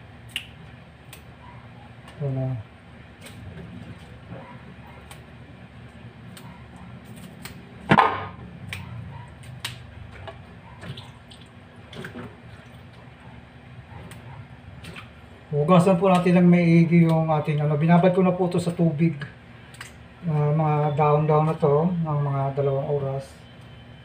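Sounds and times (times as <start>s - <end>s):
low steady hum: 0.0s - 24.0s
stems snapping and splashing: 0.2s - 1.3s, 3.1s - 4.2s, 4.9s - 13.1s, 14.0s - 15.2s, 15.8s - 17.7s, 19.6s - 20.5s.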